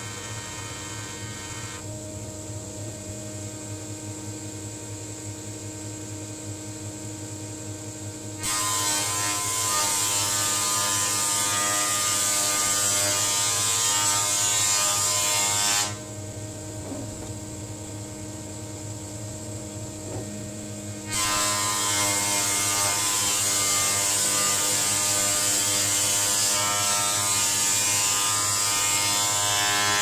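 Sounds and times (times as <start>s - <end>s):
jointer planing board: 0.0s - 1.9s, 8.4s - 18.0s, 19.8s - 30.0s
machine motor hum: 14.6s - 23.2s.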